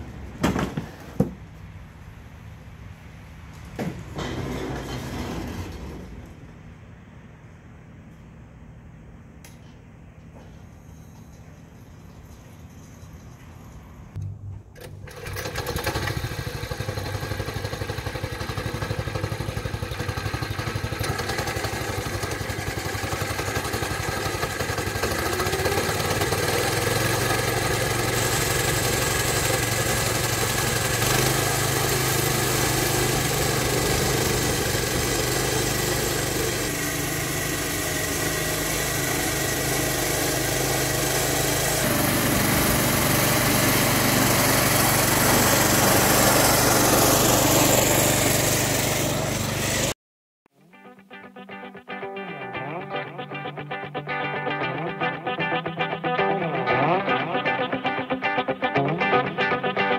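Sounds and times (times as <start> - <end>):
small petrol engine running: 14.8 - 50.0.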